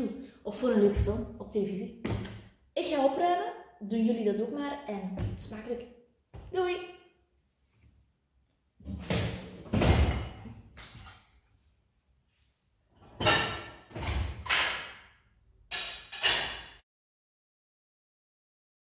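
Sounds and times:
kitchenware knocking and clattering: 13.0 - 14.8, 15.7 - 16.8.

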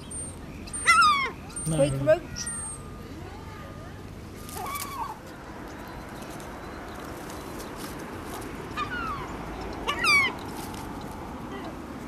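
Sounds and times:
gulls calling: 0.0 - 3.8, 4.4 - 6.9, 8.6 - 10.4
steady background noise: 0.0 - 12.0.

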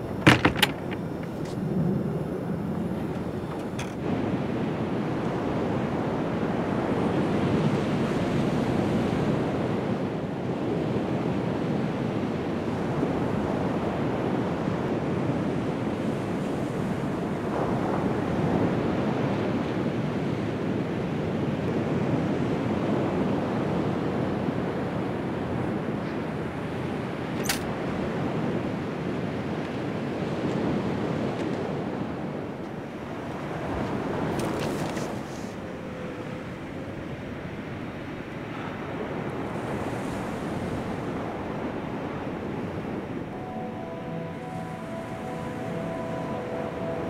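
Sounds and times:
ocean surf on sandy beach: 0.0 - 47.0
wind: 0.0 - 47.0.

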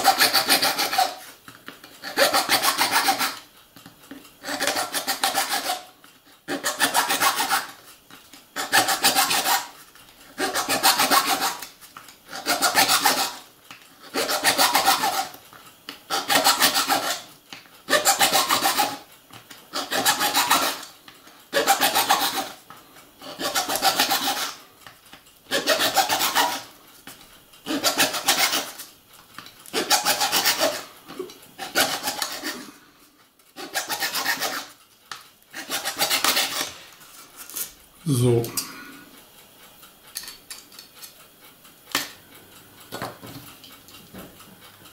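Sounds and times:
hand file rasping on metal track: 0.0 - 1.3, 2.0 - 3.5, 4.4 - 7.9, 8.6 - 11.7, 12.3 - 15.4, 16.1 - 17.3, 17.9 - 19.1, 19.7 - 20.9, 21.5 - 22.6, 23.2 - 24.6, 25.5 - 26.8, 27.7 - 28.8, 29.7 - 32.8, 33.6 - 34.8, 35.5 - 36.8.

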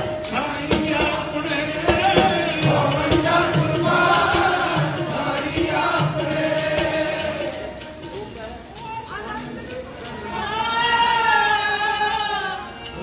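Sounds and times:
voices singing: 0.0 - 8.4, 10.0 - 13.0
harmonium drone: 0.0 - 9.4.

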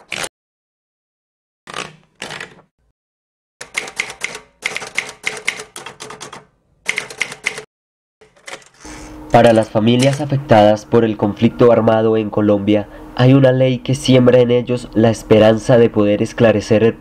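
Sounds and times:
typewriter keys striking: 1.7 - 2.7, 3.6 - 8.8.

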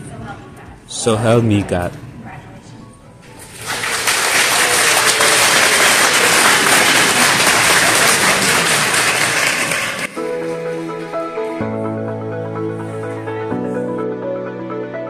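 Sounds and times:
soft background music: 0.0 - 3.8, 10.1 - 15.0
crowd applauding: 3.4 - 10.6.

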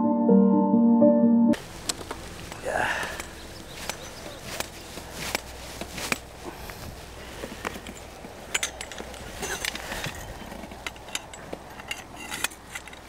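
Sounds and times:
low outdoor rumble: 1.6 - 13.0
clicks of handling gear: 3.2 - 13.0.

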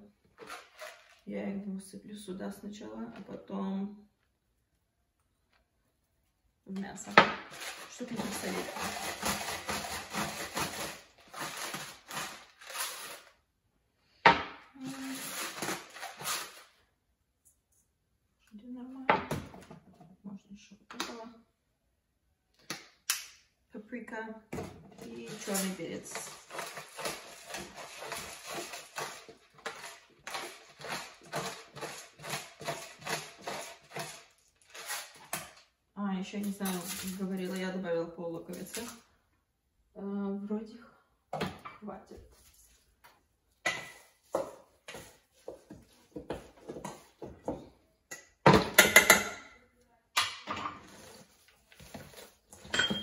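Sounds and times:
salt grinder crushing crystals: 7.4 - 13.4, 14.8 - 16.7, 25.1 - 35.6.

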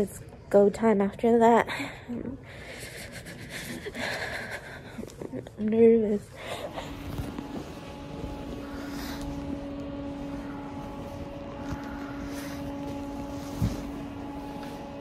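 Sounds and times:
mechanical hum: 0.0 - 15.0.

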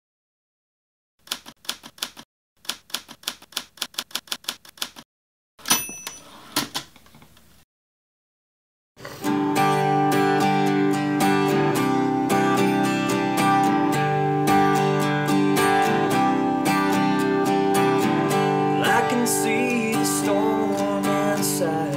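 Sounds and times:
typewriter keys clacking: 1.2 - 5.0
typewriter carriage bell: 5.6 - 6.5
acoustic guitar strumming chords: 9.0 - 21.9.

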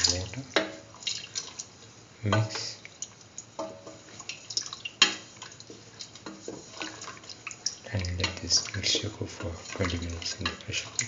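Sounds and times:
liquid sloshing and dripping: 0.0 - 11.0
spatula scraping a pan: 3.6 - 11.0.

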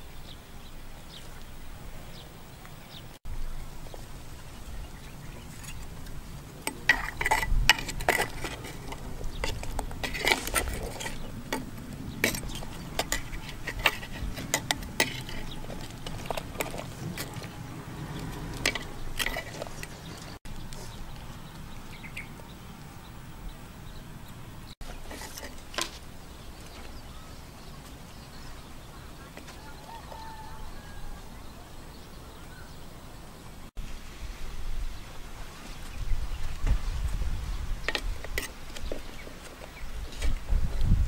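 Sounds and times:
metal ladle scraping clay pot: 5.4 - 20.4, 24.9 - 25.9.

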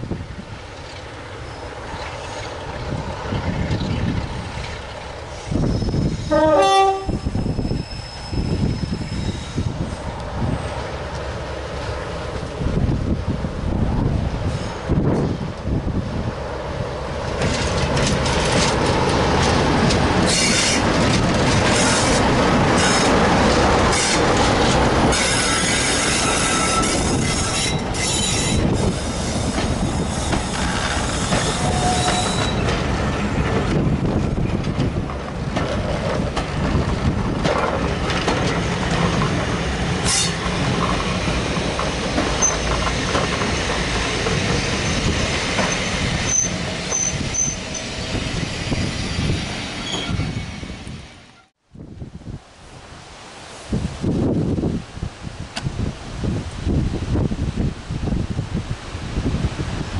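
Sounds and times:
diesel locomotive passing: 0.0 - 59.9
wheel flange squeals: 5.3 - 10.0, 25.1 - 32.8, 42.4 - 43.7, 44.6 - 51.5
train wheels knocking over rail joints: 29.5 - 45.9.

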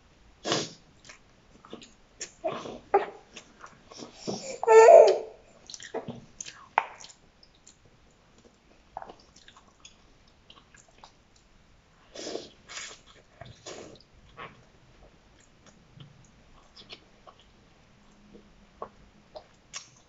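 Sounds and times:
wet chewing with clicks: 5.6 - 11.5, 12.7 - 20.0.

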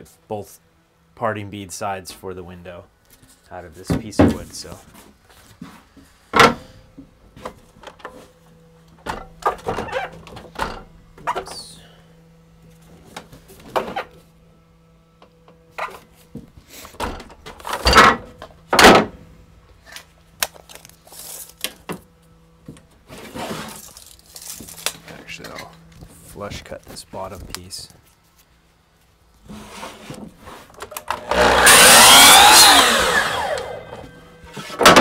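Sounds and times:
faint steady hum: 0.0 - 34.6.

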